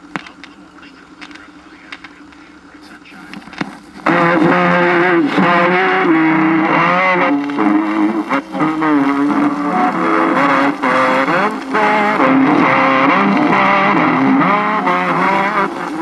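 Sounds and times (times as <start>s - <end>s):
music through old radio speaker: 0.0s - 16.0s.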